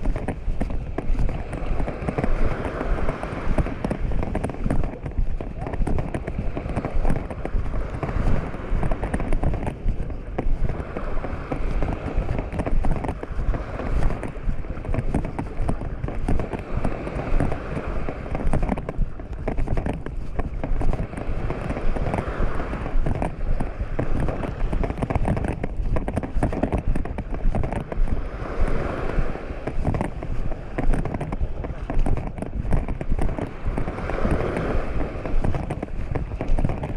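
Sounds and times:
small waves breaking on shore: 0.0s - 36.9s
wind buffeting microphone: 0.0s - 36.9s.

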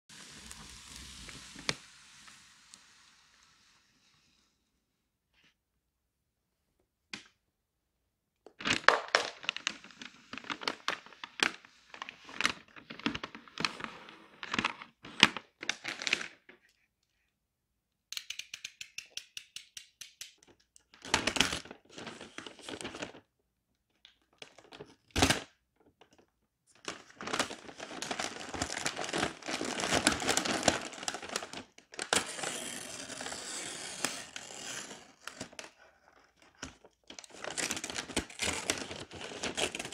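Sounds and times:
paper rustling and tearing: 26.8s - 35.6s, 37.1s - 39.9s.

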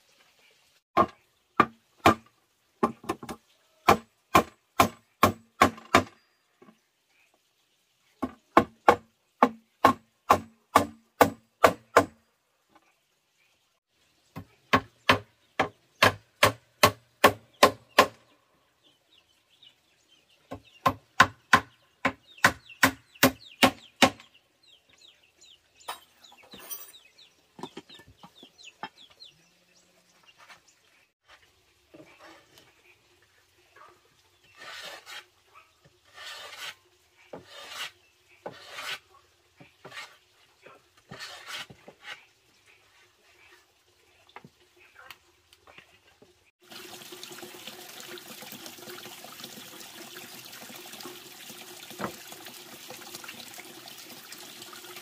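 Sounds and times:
hammer striking wood: 1.0s - 6.2s, 8.2s - 12.2s, 14.7s - 18.2s.

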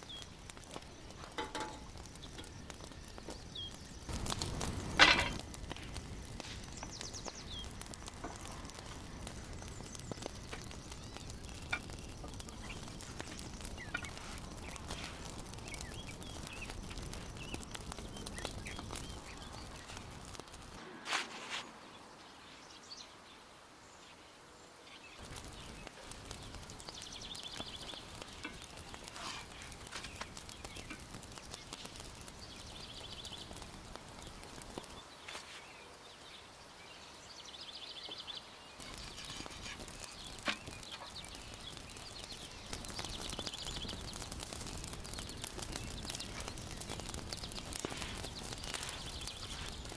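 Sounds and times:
birds chirping: 0.0s - 49.9s
flatbread hissing on griddle: 4.0s - 17.4s, 25.3s - 35.7s, 38.8s - 49.9s.

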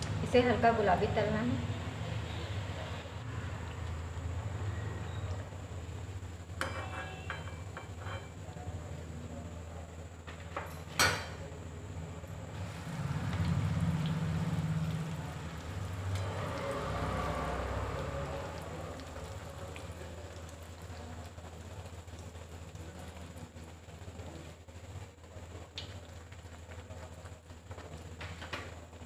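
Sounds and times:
bread sizzling in hot oil: 10.3s - 29.0s.

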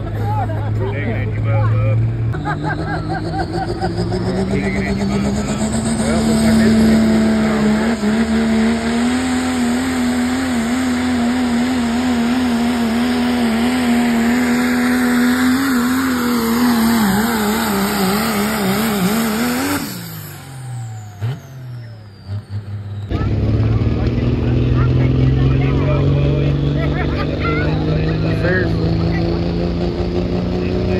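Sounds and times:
pickup truck engine revving under load: 0.0s - 30.9s.

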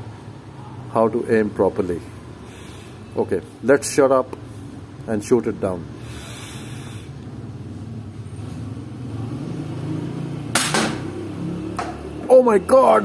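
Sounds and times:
air pistol shot: 10.6s - 11.1s.

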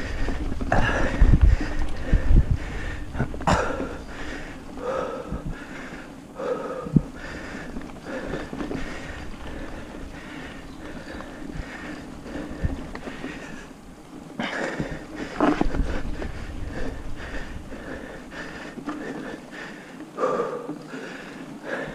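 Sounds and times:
bike thumping over bumps: 0.0s - 4.7s
person breathing hard: 0.0s - 13.8s, 14.4s - 21.9s.

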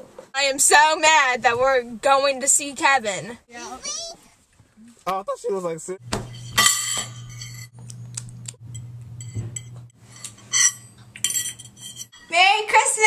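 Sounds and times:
forks clinking on plates: 6.3s - 7.8s, 8.8s - 12.3s.

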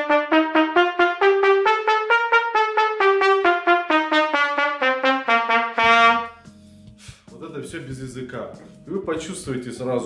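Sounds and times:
trumpet playing short notes: 0.0s - 6.4s.

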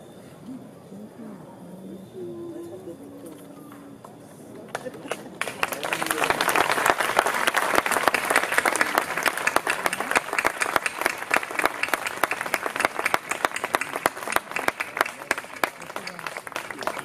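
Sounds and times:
audience applauding: 4.7s - 17.0s.

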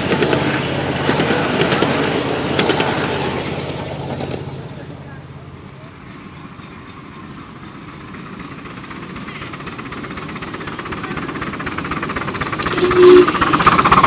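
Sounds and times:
steam locomotive exhaust beats: 0.0s - 14.0s
two-note whistle blast: 12.7s - 13.4s.

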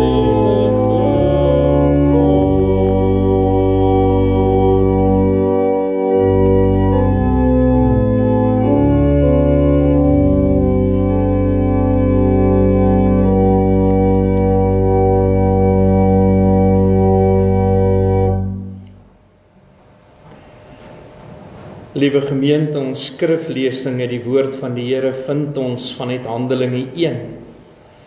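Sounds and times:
organ playing hymn chords: 0.0s - 19.2s.

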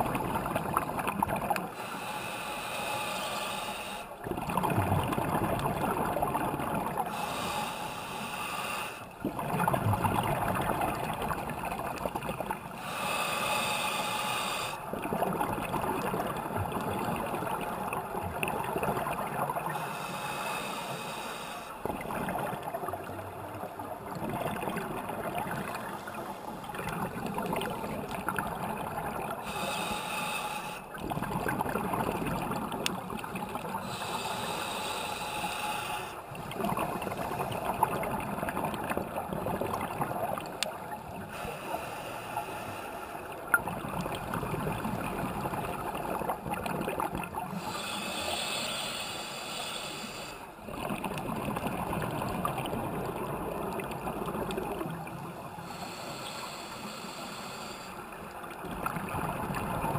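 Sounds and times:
bubbling exhaled air: 0.0s - 20.9s, 21.8s - 41.8s
regulator hissing inhalations: 1.7s - 4.1s, 7.1s - 9.1s, 12.8s - 14.8s, 19.8s - 21.8s, 29.4s - 30.9s, 33.8s - 36.3s, 41.2s - 43.3s, 47.5s - 50.5s, 55.6s - 58.2s.

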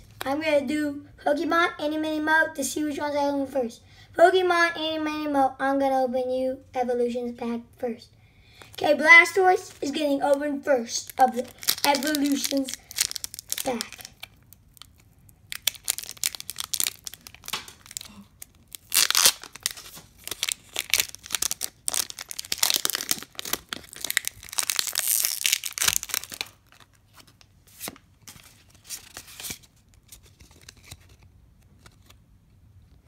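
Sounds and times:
cards rustling: 11.0s - 32.2s
foil wrapper crinkling and tearing: 11.0s - 32.2s.

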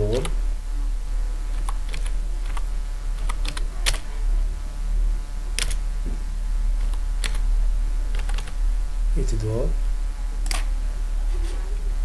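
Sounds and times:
low electrical hum: 0.0s - 12.0s
keyboard typing: 1.5s - 2.6s, 3.2s - 4.0s, 5.6s - 5.8s, 8.1s - 8.6s.

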